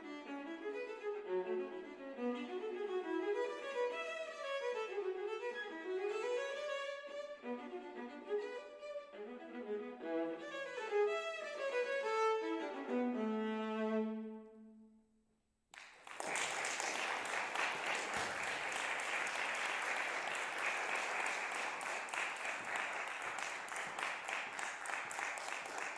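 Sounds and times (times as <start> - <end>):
audience applause: 15.8 - 25.9.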